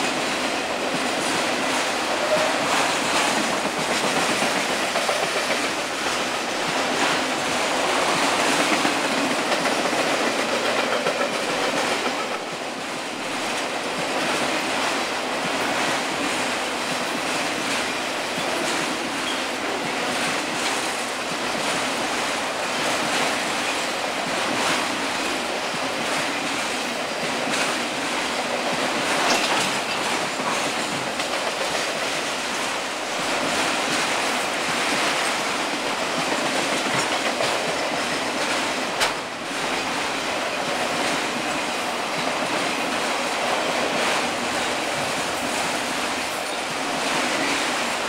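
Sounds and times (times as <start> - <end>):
train wheels rumbling on rails: 0.0 - 48.0
clicking over rail joints: 0.1 - 12.6, 22.8 - 48.0.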